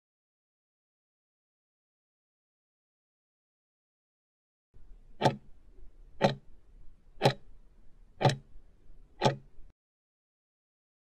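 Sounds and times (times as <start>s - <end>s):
faint low hum: 4.8s - 9.7s
clock ticking: 5.1s - 5.6s, 6.2s - 6.5s, 7.2s - 7.5s, 8.2s - 8.5s, 9.2s - 9.7s.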